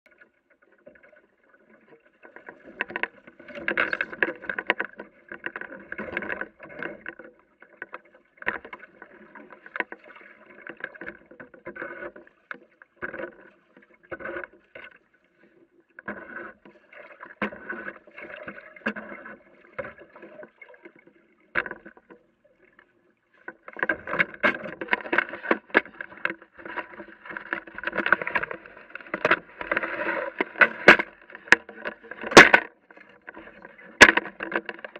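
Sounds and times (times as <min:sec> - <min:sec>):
water slapping against boat hull: 0:00.8 - 0:14.9, 0:23.4 - 0:34.9.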